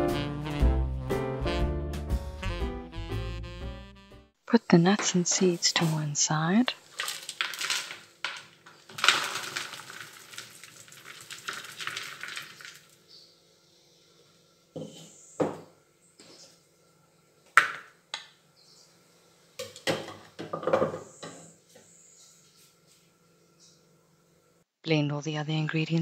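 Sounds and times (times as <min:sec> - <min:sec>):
blade scraping and tapping bowls: 0:04.9 - 0:06.2
chopped nuts pouring into plastic bowl: 0:06.7 - 0:12.9.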